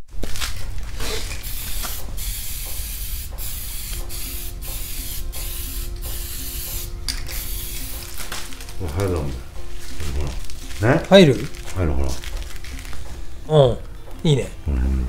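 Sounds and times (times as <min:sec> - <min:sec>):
aerosol spray can hissing: 0:01.0 - 0:08.3.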